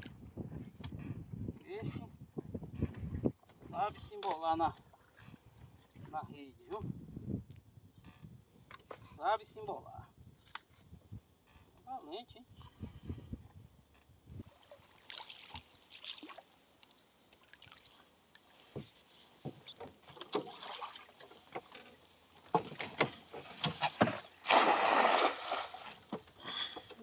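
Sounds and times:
net splashing into water: 14.5s - 16.6s, 20.1s - 21.6s, 23.4s - 26.1s
knocks and taps in wooden canoe: 18.6s - 24.3s, 25.8s - 27.0s.

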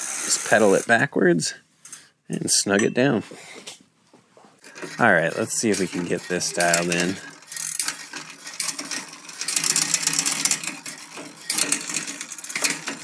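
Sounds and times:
bicycle drivetrain clicking and rattling: 4.6s - 13.0s.

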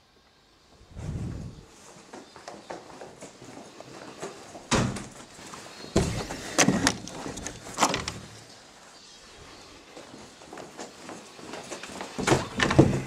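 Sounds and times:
door banging and knocking: 4.7s - 5.1s, 12.2s - 13.0s.

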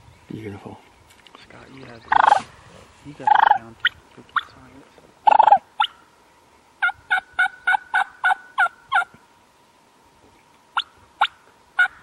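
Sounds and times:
wild turkey yelping: 2.1s - 2.4s, 3.2s - 3.6s, 5.2s - 6.1s, 6.8s - 9.1s, 10.8s - 12.0s.

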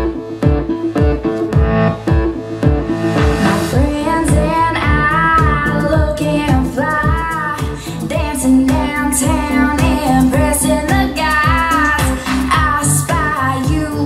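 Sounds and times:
pop song with female singer: 3.2s - 14.0s.

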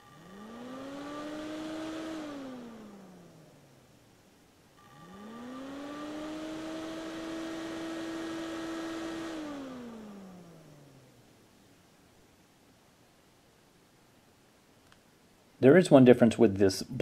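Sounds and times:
cooling fan whirring: 0.0s - 12.2s.

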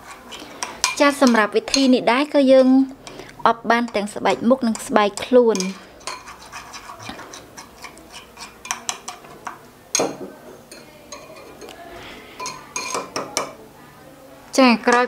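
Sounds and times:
spoon scraping paste in cup: 0.0s - 1.9s, 2.6s - 9.6s.

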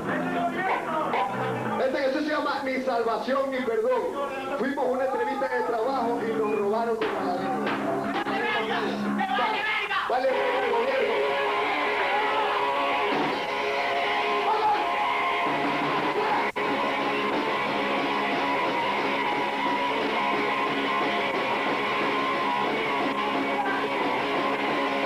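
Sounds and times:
electric guitars strummed: 10.5s - 25.0s
punk band playing live: 11.6s - 25.0s.

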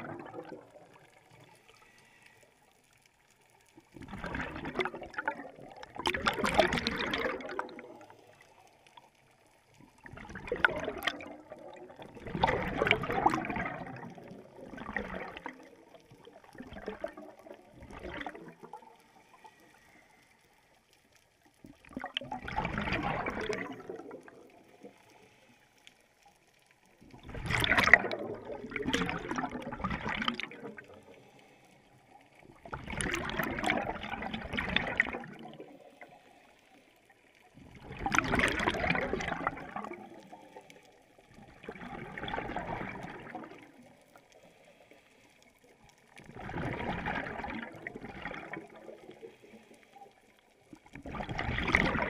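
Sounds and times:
scuba regulator bubbling exhalations: 0.0s - 1.2s, 3.9s - 8.4s, 10.0s - 19.0s, 21.8s - 25.0s, 27.2s - 31.1s, 32.6s - 35.8s, 37.6s - 40.6s, 41.4s - 44.0s, 46.2s - 49.7s, 51.0s - 52.0s.

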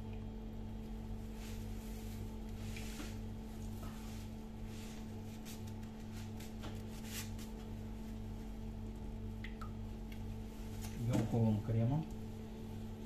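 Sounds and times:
low machine hum: 0.0s - 13.0s
piping bag rustling and squishing: 1.2s - 8.6s.

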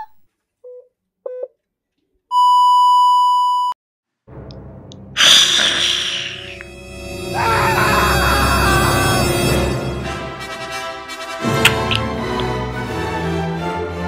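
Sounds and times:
heart monitor beeps: 2.3s - 3.7s.

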